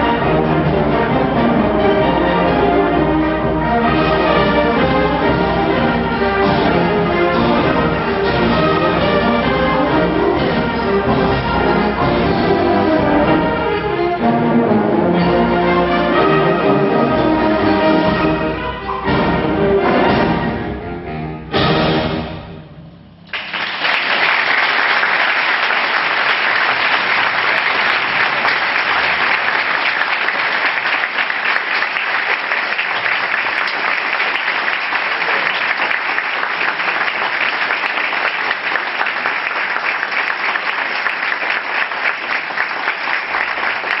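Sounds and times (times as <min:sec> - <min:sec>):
audience applause: 0:23.3 - 0:44.0.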